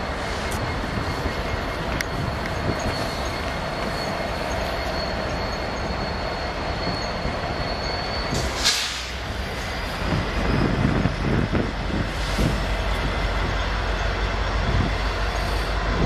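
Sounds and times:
freight train rolling on rails: 0.0s - 16.0s
high wheel squeal: 0.0s - 16.0s
sharp high screech: 2.6s - 11.9s.

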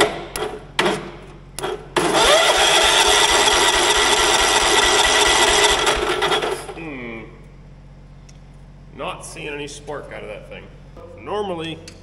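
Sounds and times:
electric starter cranking engine: 2.0s - 6.8s.

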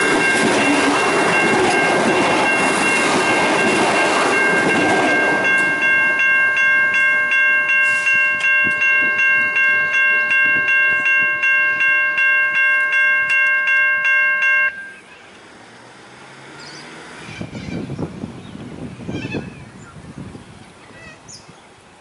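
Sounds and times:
level crossing warning bell: 0.0s - 15.2s.

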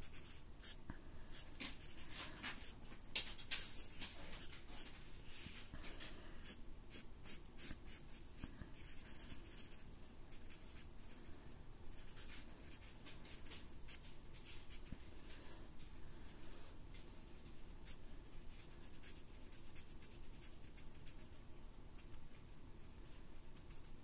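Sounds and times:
marker drawing on paper: 0.0s - 2.7s, 6.4s - 11.2s, 17.8s - 21.2s.

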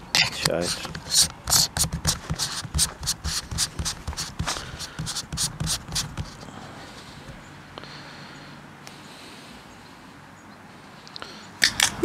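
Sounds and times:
hand rubbing against microphone: 0.2s - 7.4s.

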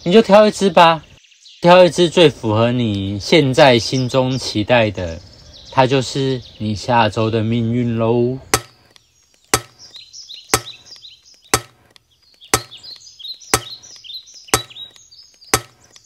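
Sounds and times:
faint high chirping: 8.0s - 16.0s
timer ticking: 8.5s - 8.8s, 9.5s - 9.8s, 10.5s - 10.9s, 11.5s - 12.9s, 13.6s - 16.0s.

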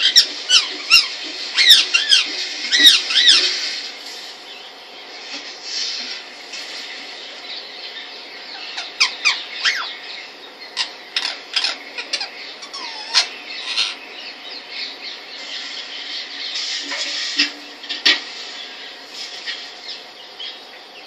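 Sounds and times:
parakeet high calls: 0.0s - 3.6s, 7.5s - 16.8s.

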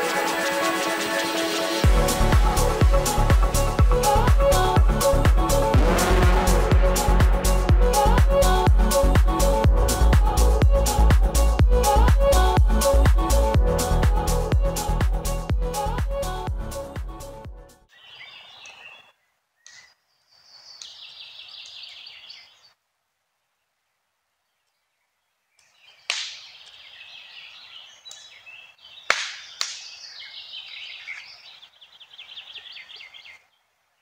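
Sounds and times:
wild birds singing: 17.9s - 22.8s, 23.4s - 34.0s.

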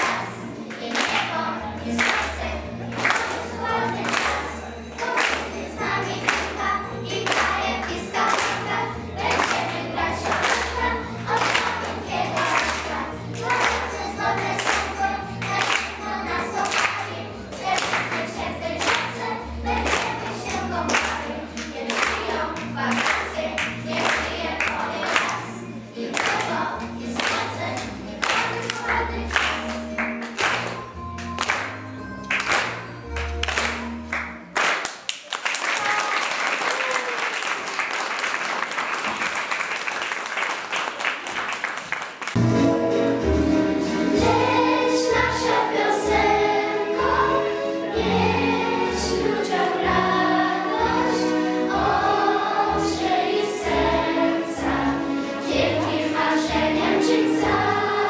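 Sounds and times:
children singing together: 0.0s - 30.5s, 42.6s - 58.0s.

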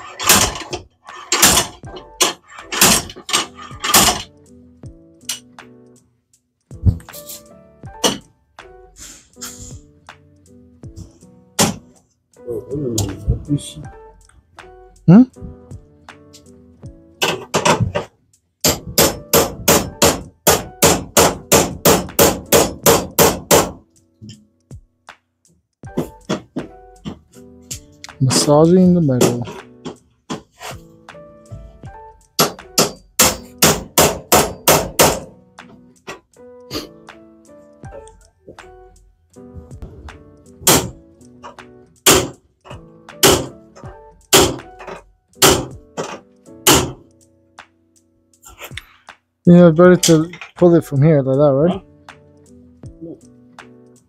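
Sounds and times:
background music: 0.0s - 54.0s
hammer blows on car body metal: 18.6s - 23.8s, 32.4s - 35.4s, 40.6s - 41.0s, 42.1s - 42.4s, 43.2s - 43.6s, 44.3s - 47.1s.

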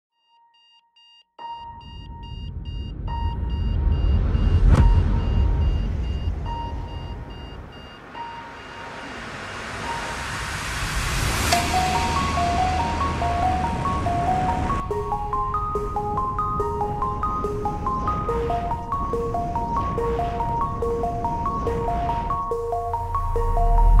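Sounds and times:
alarm clock beeping: 0.5s - 10.5s, 11.5s - 24.0s
rising swell with sharp hit: 3.0s - 24.0s
sparse held music tones: 11.2s - 24.0s.

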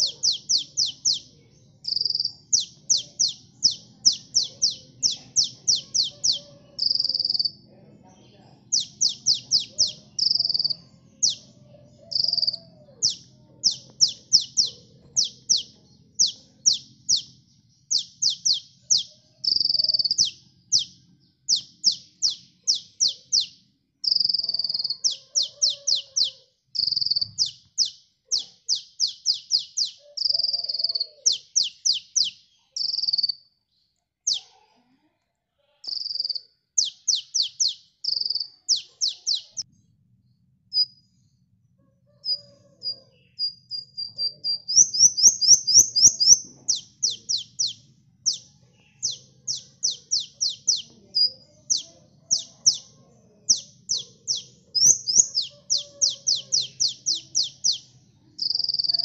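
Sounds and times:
bird singing chattering song: 0.0s - 34.6s, 35.8s - 41.4s, 42.1s - 59.0s.

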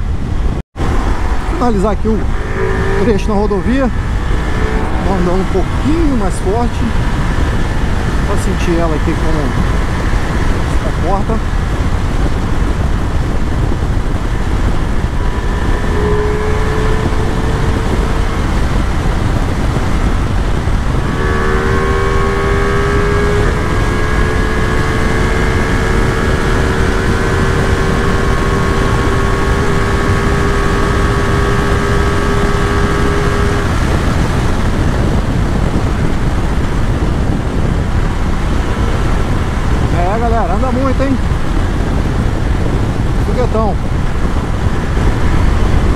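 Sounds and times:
steady whine: 0.0s - 36.4s
motorcycle engine rumble: 0.0s - 45.9s
wind rush: 0.0s - 45.9s.

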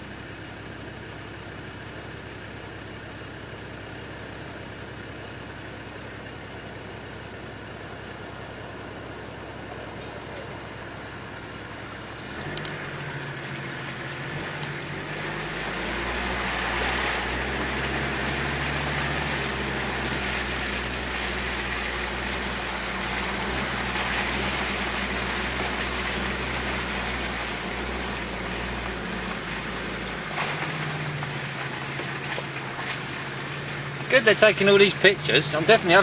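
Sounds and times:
diesel engine pulling: 0.0s - 36.0s
water rushing against wheels: 8.2s - 36.0s.

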